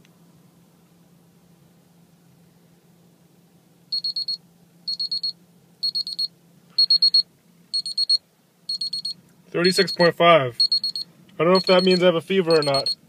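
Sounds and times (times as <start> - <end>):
thermometer beeping: 3.9 - 13.0.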